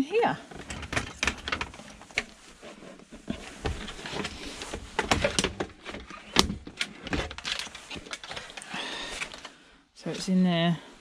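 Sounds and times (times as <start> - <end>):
hard plastic knocks and scrapes: 0.5 - 8.6.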